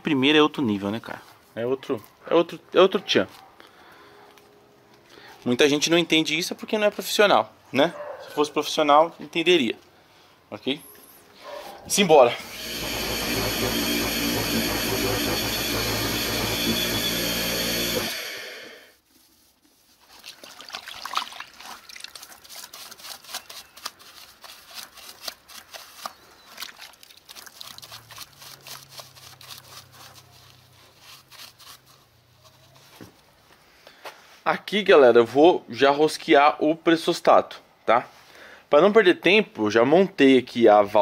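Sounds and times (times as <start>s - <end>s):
motor machine running with hiss: 12.3s - 18.9s.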